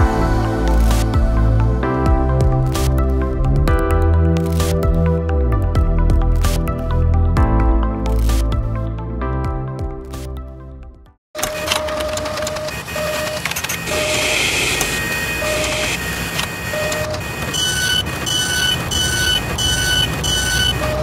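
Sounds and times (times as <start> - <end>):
mechanical whirring and clatter: 11.4 - 21.0.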